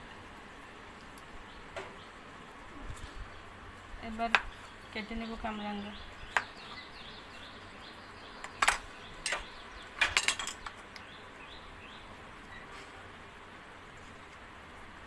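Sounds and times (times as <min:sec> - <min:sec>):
faint bird chirps: 0:04.5 - 0:10.0, 0:11.0 - 0:13.1.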